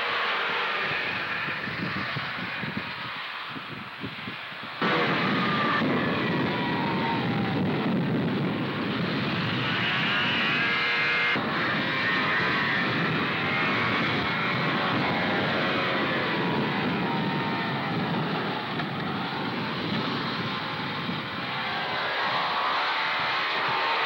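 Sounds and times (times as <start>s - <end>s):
snowmobile engine running: 4.8s - 24.0s.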